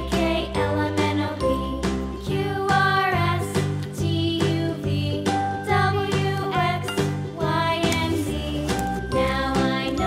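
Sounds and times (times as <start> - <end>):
light melodic tune with bass beat: 5.2 - 10.0.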